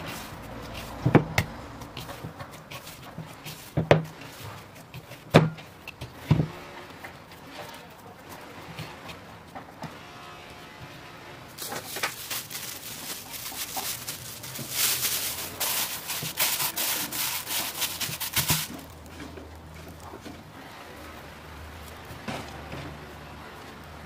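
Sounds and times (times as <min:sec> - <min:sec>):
plastic sheet crinkling: 0:11.6 - 0:20.2.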